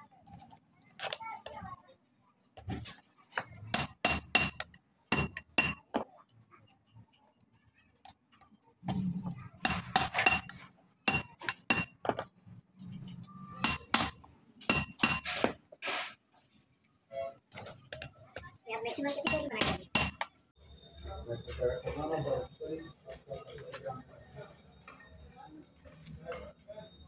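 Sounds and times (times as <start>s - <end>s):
metal tool striking metal disc: 3.7s - 6.0s, 9.6s - 12.2s, 13.6s - 15.6s, 19.2s - 20.3s.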